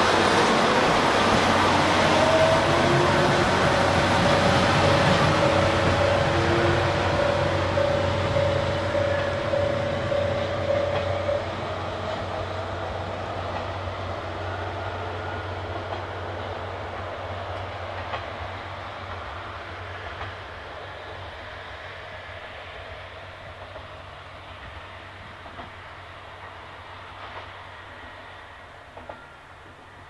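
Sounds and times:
steady high tone: 0.0 - 12.0
diesel railcar engine and wheels: 0.0 - 30.0.

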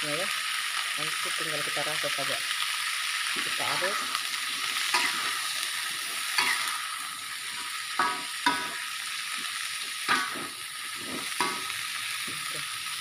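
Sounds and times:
beans sizzling in oil: 0.0 - 13.0
spatula scraping a wok: 3.3 - 12.5.

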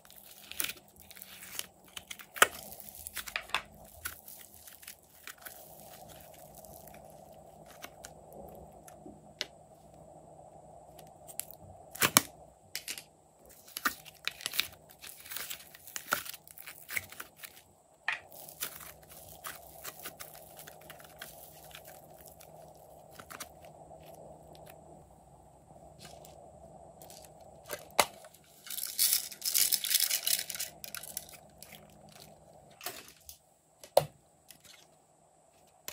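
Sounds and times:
slime stretching and crackling: 0.0 - 9.1, 13.5 - 24.8, 27.0 - 32.9.

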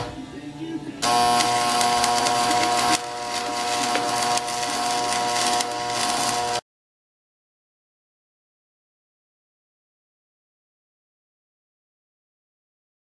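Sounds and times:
welder electrical hum: 0.0 - 6.6
welding arc crackling: 1.0 - 6.6.

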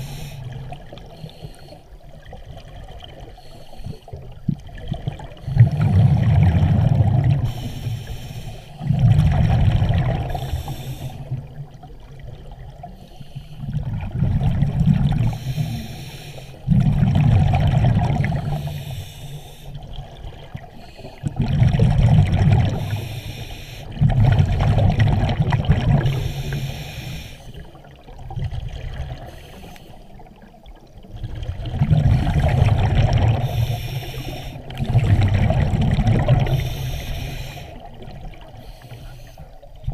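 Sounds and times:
diver breathing through regulator: 0.0 - 2.0, 3.2 - 4.2, 7.2 - 9.3, 10.0 - 11.4, 12.8 - 13.8, 15.1 - 17.1, 18.0 - 19.9, 20.7 - 21.4, 22.5 - 24.8, 25.9 - 27.8, 29.1 - 30.3, 31.9 - 35.5, 36.1 - 39.6
bubbling exhaust: 21.2 - 27.3, 31.3 - 38.8.

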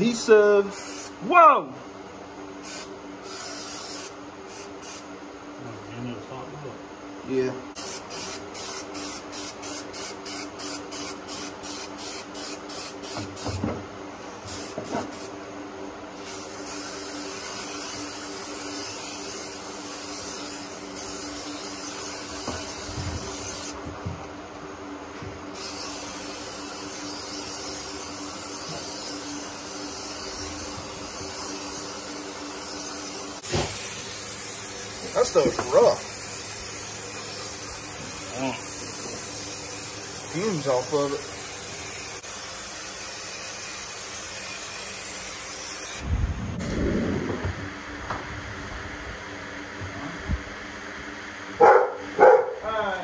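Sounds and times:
spray can hissing: 0.7 - 1.2, 2.6 - 5.1, 7.8 - 13.6, 14.4 - 15.4, 16.2 - 23.8, 25.6 - 46.0.

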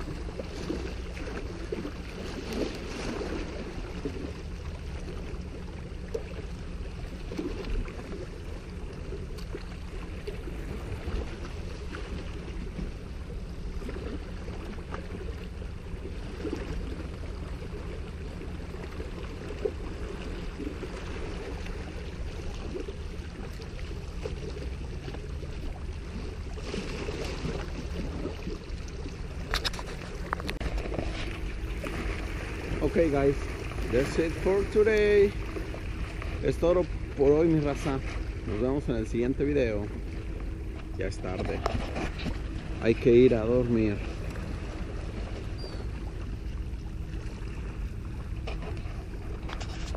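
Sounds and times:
small waves washing against rocks: 0.0 - 5.4, 18.6 - 45.3
wind: 0.0 - 49.9.

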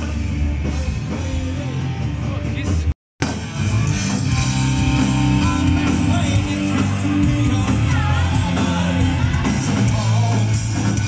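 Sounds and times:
bass guitar: 0.0 - 11.0
drums: 0.0 - 11.0
electric guitar: 3.2 - 11.0
person singing: 3.6 - 11.0.

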